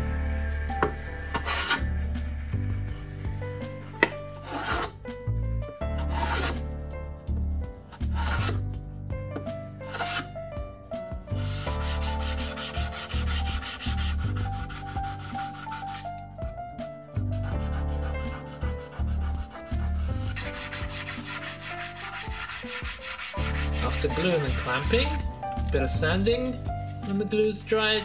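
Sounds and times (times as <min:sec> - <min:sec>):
background music: 0:00.0 - 0:28.0
hand plane swishing strokes: 0:00.8 - 0:02.2, 0:02.8 - 0:05.0, 0:06.0 - 0:06.6, 0:08.0 - 0:08.6, 0:09.9 - 0:10.3, 0:11.4 - 0:16.1, 0:17.4 - 0:25.2
sandpaper rubbing on wood: 0:08.1 - 0:08.6, 0:11.4 - 0:16.1, 0:17.5 - 0:25.2.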